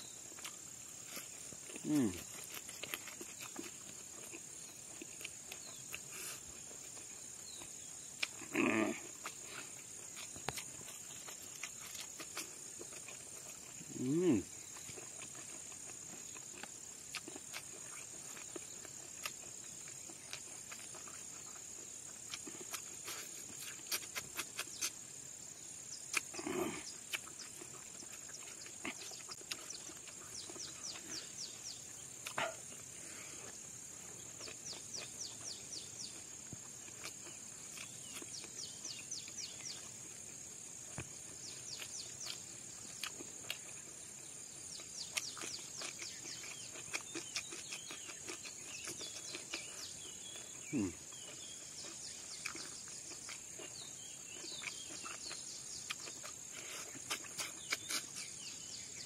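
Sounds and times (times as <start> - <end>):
wet chewing and lip-smacking: 0.1 - 59.0.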